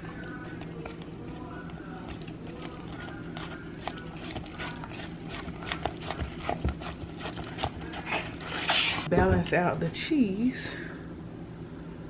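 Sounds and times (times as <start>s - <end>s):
spatula stirring thick batter: 0.0s - 9.1s
steady low hum: 0.0s - 12.0s.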